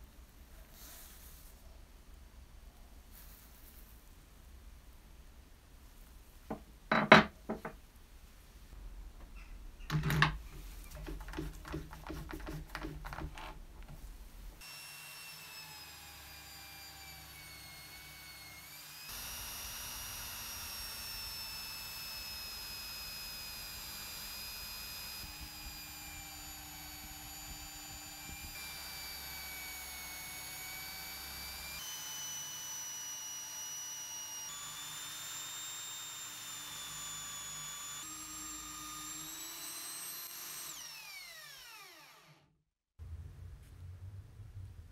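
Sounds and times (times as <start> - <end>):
electric drill whining: 14.6 - 42.5.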